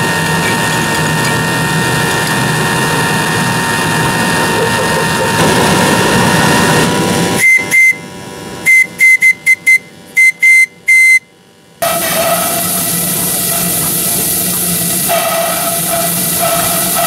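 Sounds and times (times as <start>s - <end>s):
steam whistle tooting: 7.4s - 17.0s
steady steam hiss: 11.8s - 17.0s.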